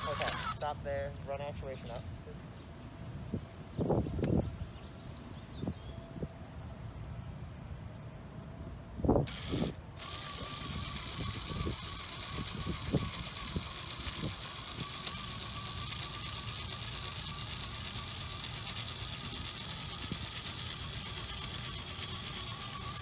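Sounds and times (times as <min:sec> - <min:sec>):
electric motors whining: 0:00.0 - 0:00.8, 0:09.3 - 0:23.0.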